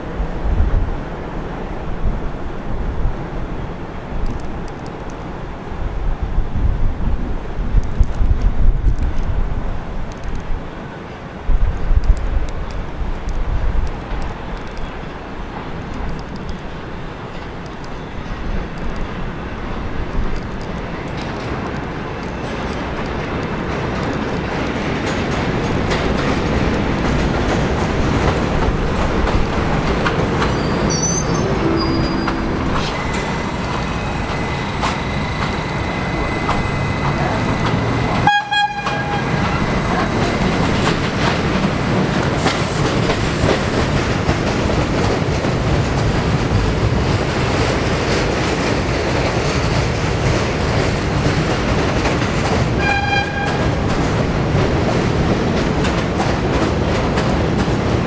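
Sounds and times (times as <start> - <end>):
subway train rumbling: 0.0 - 58.0
rail clicks: 3.3 - 5.5, 7.6 - 58.0
train horn blasts: 30.8 - 34.4, 35.6 - 40.0, 52.8 - 53.8.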